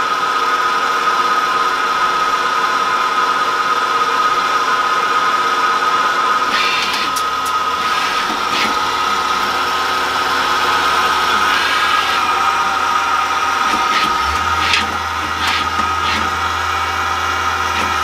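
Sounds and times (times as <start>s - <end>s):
machine high whine: 0.0s - 18.0s
low hum: 6.5s - 18.0s.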